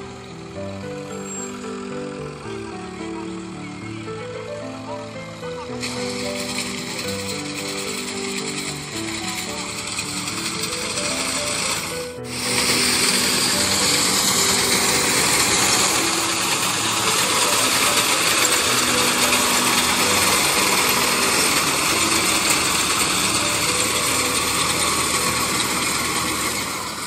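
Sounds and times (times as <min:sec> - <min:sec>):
tractor reaper mechanical clatter: 0:00.1 - 0:27.0.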